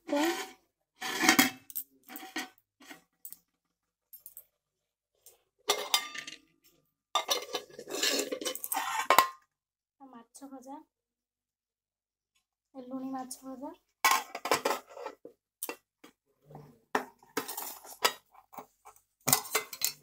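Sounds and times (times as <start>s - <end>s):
metal lids clinking on pots: 5.7s - 6.4s, 7.2s - 9.4s, 14.0s - 15.8s, 17.0s - 20.0s.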